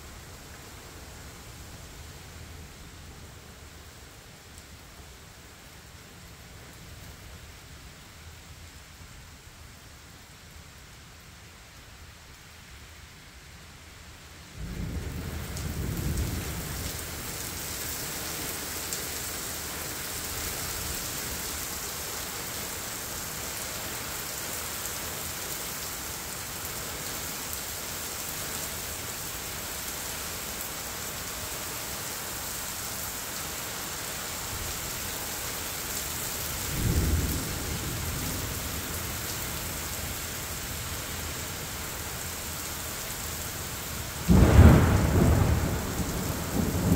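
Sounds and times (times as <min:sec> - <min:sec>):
heavy rain pouring: 0:14.4 - 0:46.9
thunder rumbling: 0:44.2 - 0:46.9.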